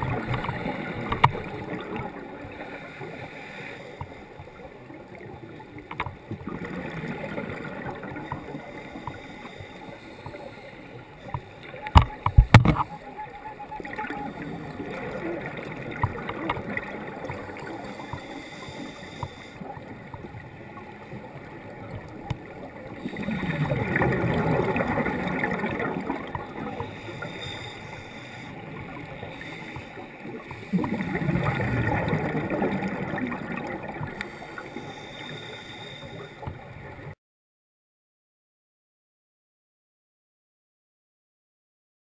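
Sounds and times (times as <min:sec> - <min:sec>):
underwater bubbles: 0:00.0 - 0:37.2
underwater noise: 0:00.0 - 0:37.2.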